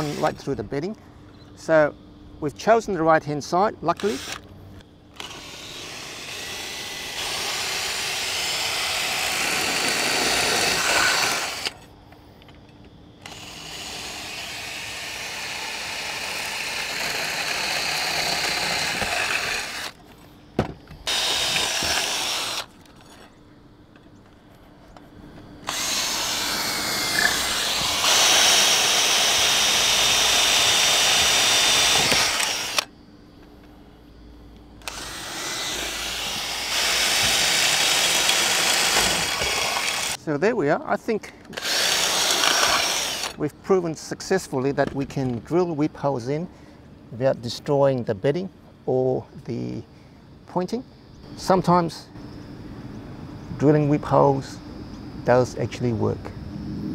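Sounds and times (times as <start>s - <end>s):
cordless drill drilling into mortar: 0.0s - 0.4s, 4.0s - 4.4s, 5.2s - 11.8s, 13.2s - 20.0s, 21.0s - 22.7s, 25.6s - 32.9s, 34.8s - 40.2s, 41.5s - 43.4s.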